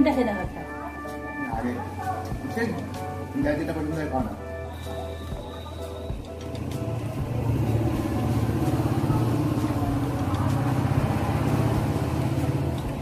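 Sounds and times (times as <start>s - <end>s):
motor engine running: 6.5s - 13.0s.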